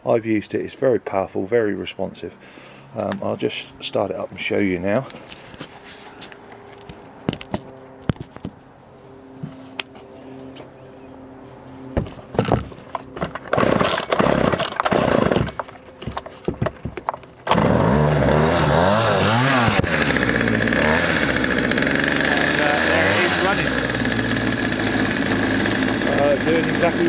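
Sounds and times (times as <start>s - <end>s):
recoil starter cord yanks: 12.0s - 27.0s
chainsaw engine revving and running: 13.2s - 16.2s, 17.4s - 27.0s.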